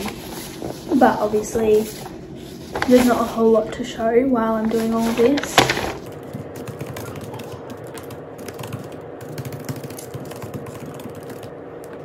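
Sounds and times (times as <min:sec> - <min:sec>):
laptop keyboard typing: 0:05.2 - 0:12.0.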